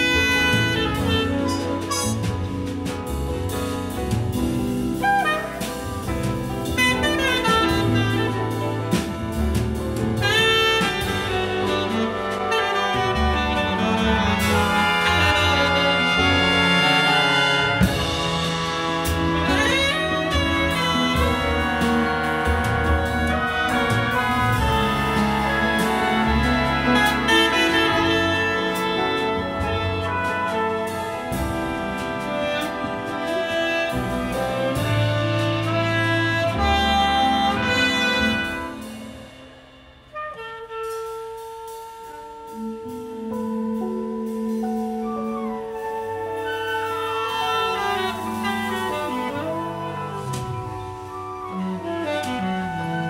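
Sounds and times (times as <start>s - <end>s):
tenor saxophone solo: 0.0s - 2.8s, 4.8s - 39.2s, 40.1s - 53.0s
upright bass: 0.0s - 38.8s
big band jazz: 0.0s - 53.0s
brass chords: 0.0s - 53.0s.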